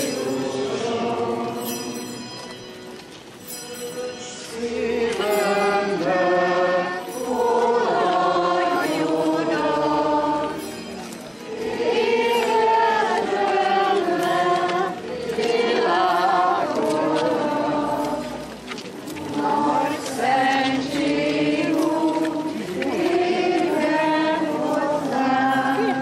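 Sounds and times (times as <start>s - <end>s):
group singing a hymn: 0.0s - 2.5s, 3.9s - 26.0s.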